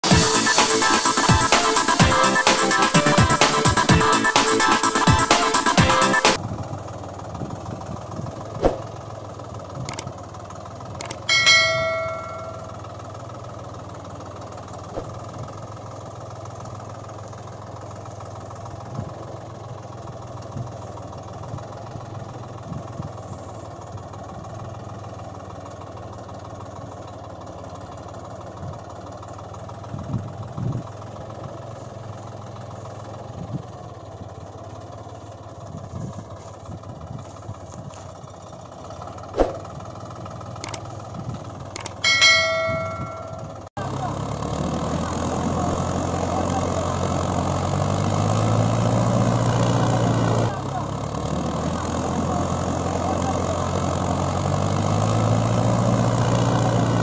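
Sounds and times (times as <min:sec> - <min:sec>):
engine idling: 0:00.0 - 0:57.0
sharp clicks: 0:11.0 - 0:11.3, 0:40.6 - 0:40.9, 0:41.8 - 0:42.1
bell-like ring: 0:11.1 - 0:12.8, 0:41.8 - 0:43.7.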